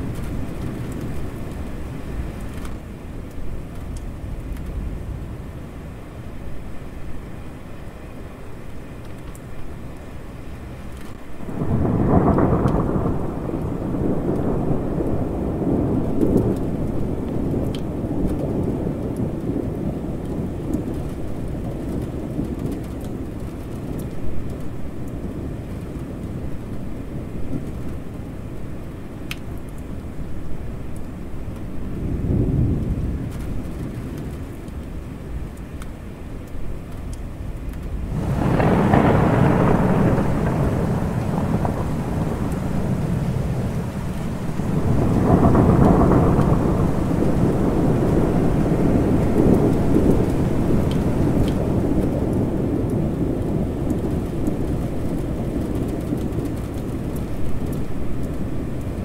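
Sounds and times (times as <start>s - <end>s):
steady rain: 0.0s - 59.0s
thunder rolling: 10.6s - 28.2s, 31.6s - 35.1s, 37.6s - 59.0s.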